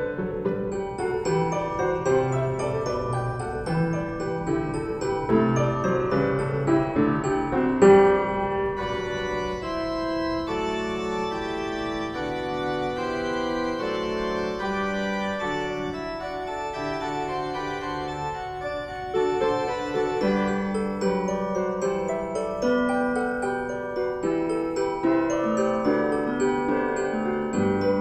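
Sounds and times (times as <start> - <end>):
slow organ-like keyboard chords: 4.0 - 24.2.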